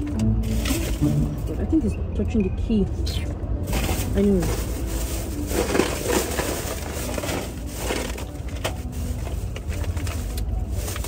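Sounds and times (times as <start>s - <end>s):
plastic wrapper crinkling: 0.0s - 1.1s, 3.7s - 11.0s.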